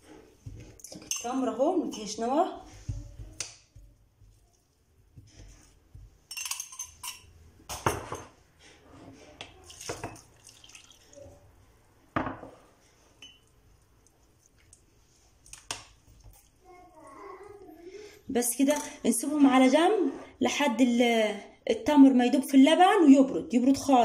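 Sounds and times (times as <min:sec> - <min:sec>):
spoon clinking on ceramic bowl: 0:06.3 - 0:07.3, 0:13.2 - 0:13.5
milk pouring into bowl: 0:09.6 - 0:11.4.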